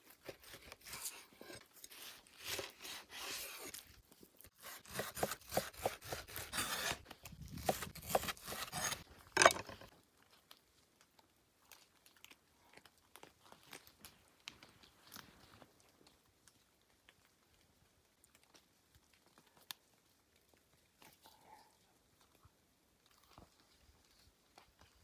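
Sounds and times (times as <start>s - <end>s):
cleaver chopping on wooden board: 4.7s - 7.0s, 7.6s - 9.7s.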